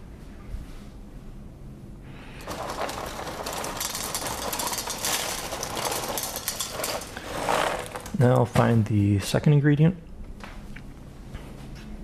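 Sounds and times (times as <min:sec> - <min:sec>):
cereal clattering into pot: 0:02.4 - 0:08.4.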